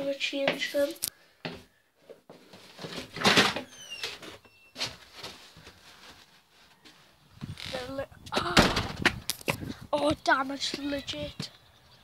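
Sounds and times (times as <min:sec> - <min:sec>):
short high squeaks: 0:03.6 - 0:05.0.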